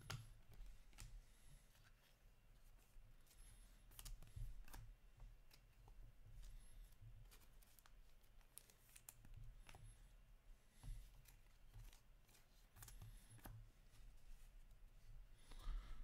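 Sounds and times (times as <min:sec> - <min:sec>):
trading cards clicking and rustling: 0:07.2 - 0:09.8, 0:11.0 - 0:13.5.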